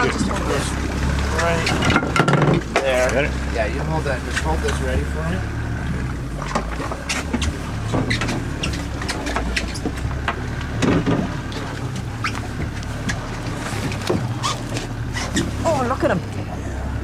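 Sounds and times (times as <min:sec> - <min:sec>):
boat engine idling: 0:00.0 - 0:17.0
water splashes: 0:00.0 - 0:17.0
knocks and handling clatter: 0:01.1 - 0:03.2, 0:05.9 - 0:15.6.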